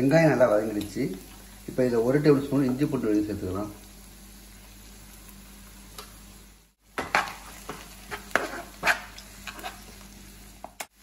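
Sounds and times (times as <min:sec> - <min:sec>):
onions sizzling in oil: 0:00.0 - 0:11.0
steel spoon scraping pan: 0:07.1 - 0:09.8.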